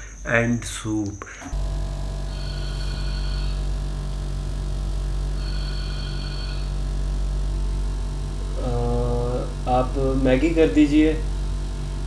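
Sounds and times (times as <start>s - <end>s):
low hum: 0.0s - 12.0s
telephone ringback tone: 2.3s - 3.6s, 5.4s - 6.7s.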